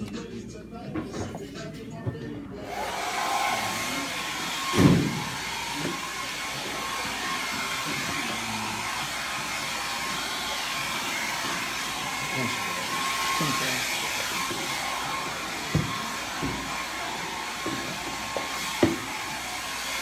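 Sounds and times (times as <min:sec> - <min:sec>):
blow dryer running: 0:02.6 - 0:20.0.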